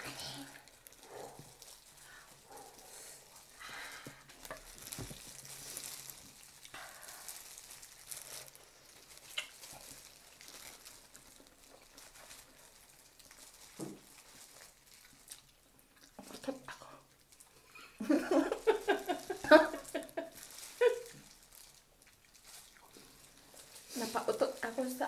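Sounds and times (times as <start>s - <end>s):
wet chewing and slurping: 0.6s - 18.0s, 20.3s - 24.0s
small mouth clicks: 9.3s - 9.6s.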